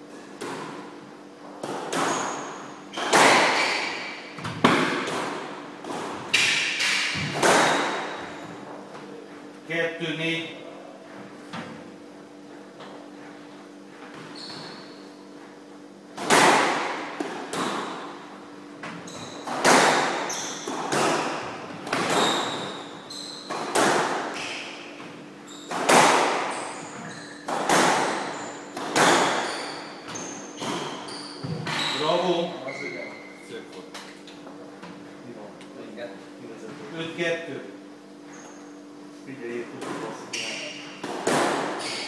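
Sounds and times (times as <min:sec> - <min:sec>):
squash ball hitting rackets and walls: 0:00.1 - 0:08.8, 0:14.1 - 0:32.5, 0:39.7 - 0:42.0
shoes squeaking on wooden floor: 0:02.1 - 0:04.6, 0:13.1 - 0:15.6, 0:18.9 - 0:19.6, 0:22.0 - 0:23.6, 0:25.4 - 0:25.8, 0:26.5 - 0:27.5, 0:29.3 - 0:33.4, 0:38.2 - 0:38.8.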